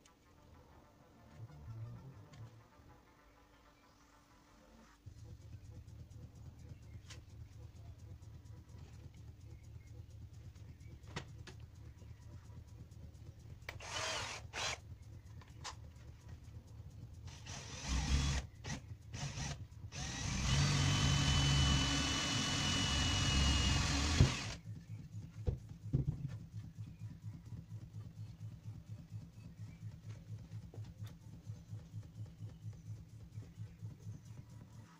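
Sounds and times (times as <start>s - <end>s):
cordless drill boring into wood: 13.7s - 14.8s, 17.3s - 24.6s.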